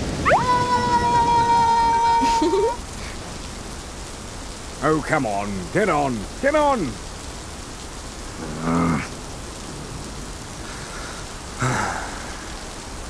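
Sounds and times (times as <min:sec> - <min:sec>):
heavy rain: 0:00.0 - 0:13.0
low voice-like sounds: 0:08.3 - 0:09.2, 0:11.5 - 0:12.6.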